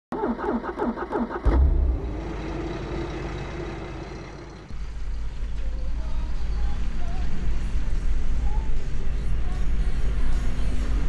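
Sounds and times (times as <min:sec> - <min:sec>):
van engine cranking and starting: 0:00.1 - 0:05.6.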